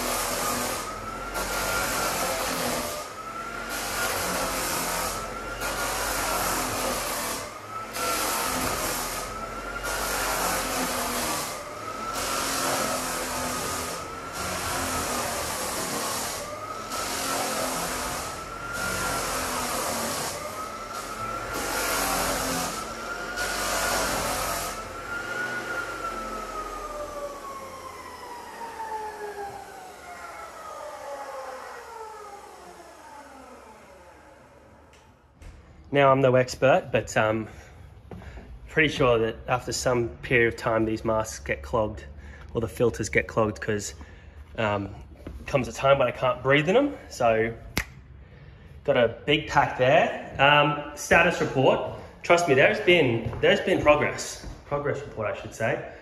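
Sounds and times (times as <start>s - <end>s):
sanding hiss on floorboards: 0.0s - 27.0s
floor sander motor whine: 0.0s - 36.6s, 42.2s - 56.0s.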